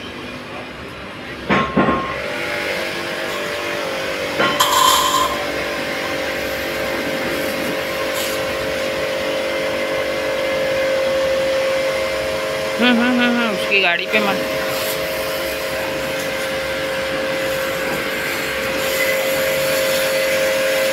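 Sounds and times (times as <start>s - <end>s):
pump motor humming: 2.2s - 20.9s
water jet hissing on steel: 4.6s - 11.5s, 13.6s - 20.9s.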